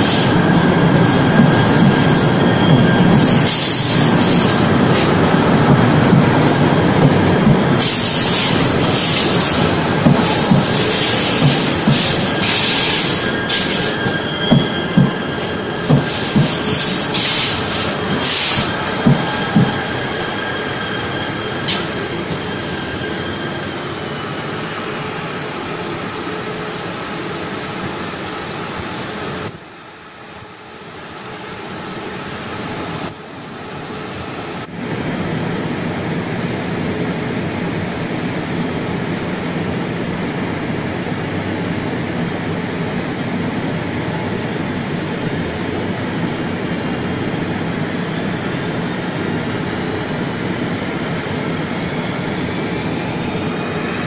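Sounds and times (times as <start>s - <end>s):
electric train running: 0.0s - 29.6s
train wheels clacking over rail joints: 2.7s - 19.8s.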